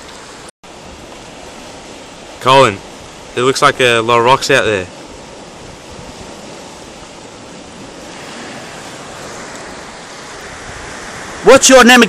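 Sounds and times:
sea surf against rocks: 0.0 - 12.0
wind on microphone: 5.0 - 11.5.

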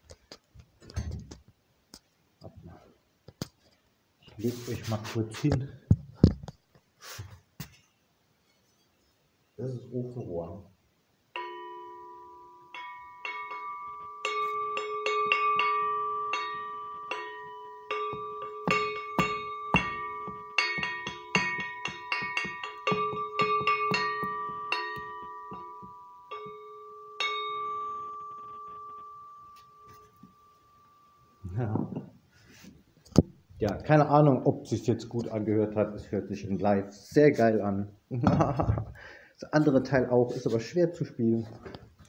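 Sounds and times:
metal stovepipe struck ringing: 11.4 - 30.8.

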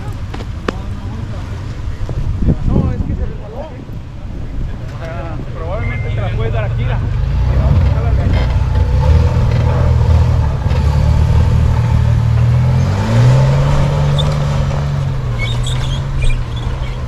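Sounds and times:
suv engine under load: 4.7 - 17.0.

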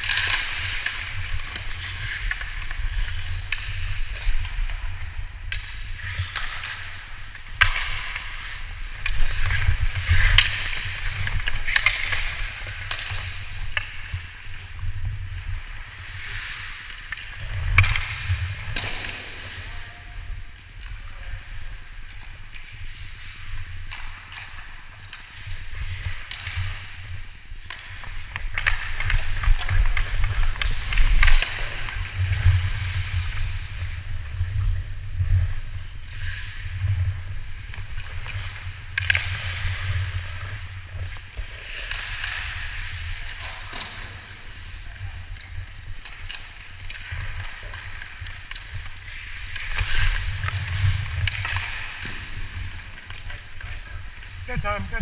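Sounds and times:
skate blades scraping on ice: 0.0 - 55.0
sticks and puck clacking: 0.0 - 55.0.

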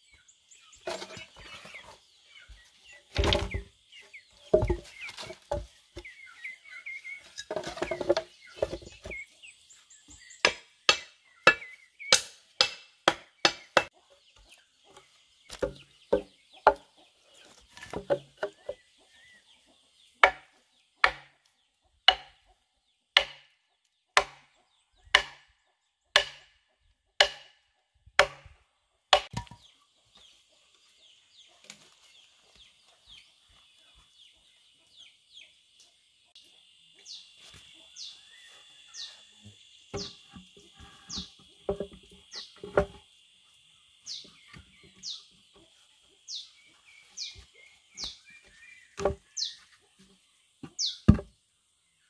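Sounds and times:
hatchet chopping wood: 10.4 - 14.0, 15.5 - 16.9, 20.2 - 21.4, 22.1 - 22.4, 23.2 - 23.6, 24.2 - 25.5, 26.1 - 26.6, 27.2 - 27.6, 28.2 - 29.6, 39.9 - 40.5, 49.0 - 49.6, 50.6 - 51.4.

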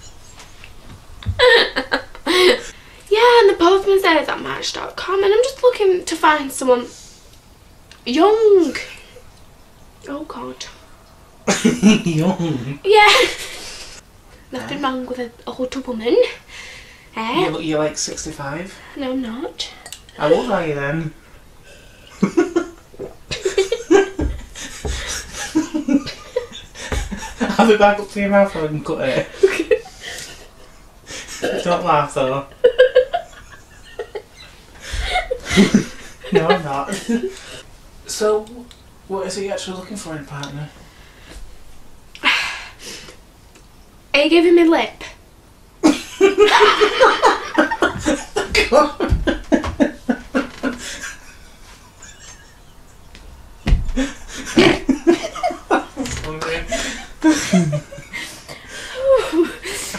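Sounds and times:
people laughing: 1.3 - 2.8, 11.5 - 13.8, 22.2 - 31.8, 32.5 - 37.6, 45.8 - 53.2, 53.9 - 59.9
low bumps: 22.2 - 29.7, 53.1 - 58.0.

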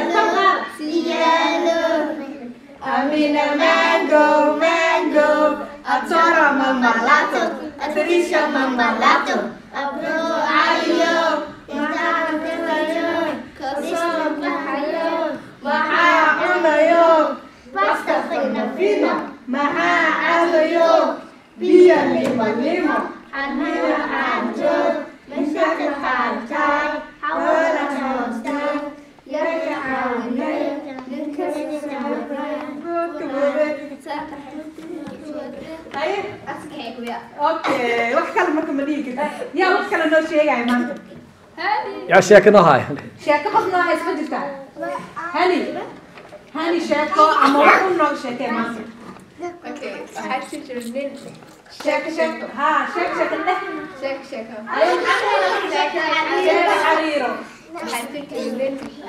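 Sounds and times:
children singing in unison: 0.0 - 33.8.

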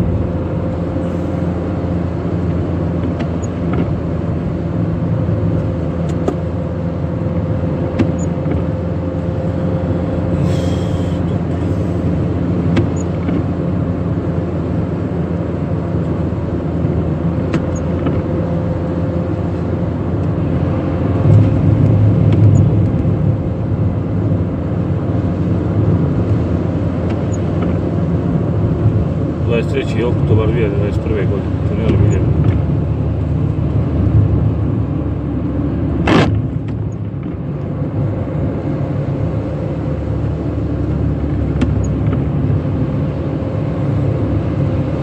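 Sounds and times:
car engine and road noise: 0.0 - 45.0.

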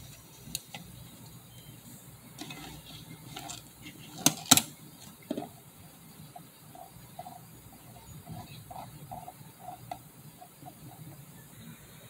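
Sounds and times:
scraping of metal camera body: 2.4 - 5.6, 6.4 - 11.0.

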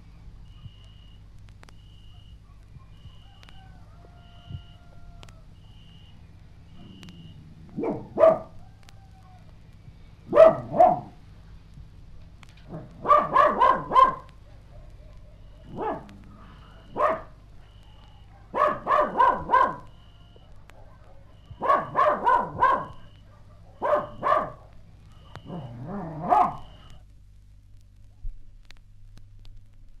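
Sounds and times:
steady low hum: 0.0 - 30.0
dog barking: 2.1 - 3.4, 6.8 - 8.6, 10.3 - 11.2, 12.7 - 26.9.

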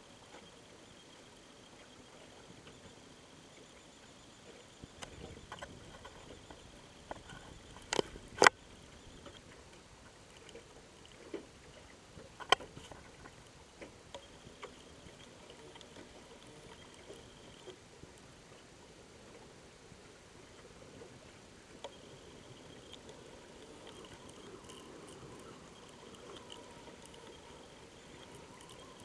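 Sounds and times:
faint steady hiss: 0.0 - 29.0
light clicks: 4.8 - 18.2, 21.7 - 29.0.

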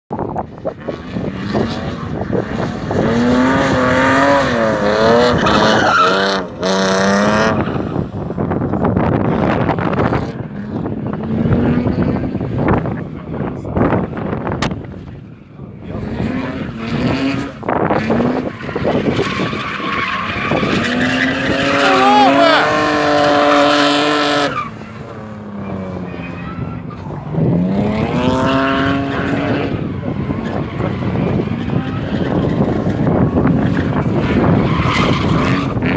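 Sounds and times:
car engine revving high: 0.8 - 8.4, 15.8 - 35.9.

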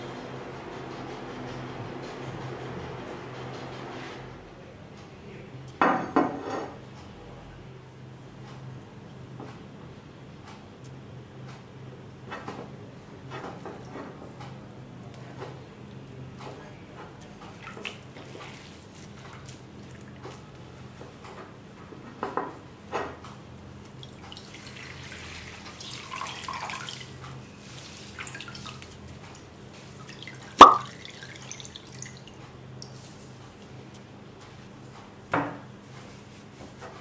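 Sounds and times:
water dripping into a bowl: 30.0 - 33.0
sharp knock: 30.6 - 30.9.

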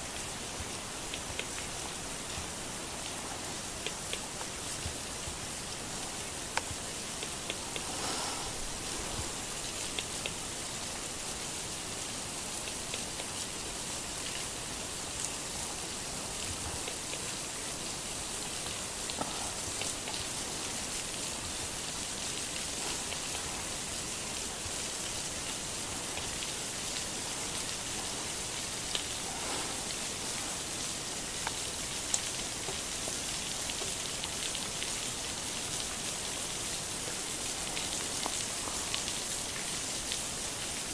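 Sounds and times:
rain-like hiss: 0.0 - 40.9
faint ticks: 18.6 - 20.4, 31.4 - 32.9.

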